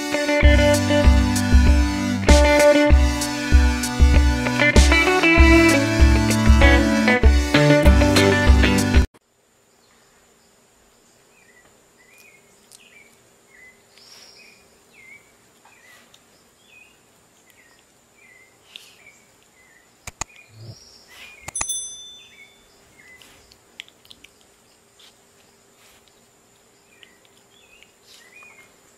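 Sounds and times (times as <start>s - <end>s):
sharp clicks: 20.0s - 20.5s
faint high chirps: 20.4s - 23.4s
bright electronic chime: 21.6s - 22.6s.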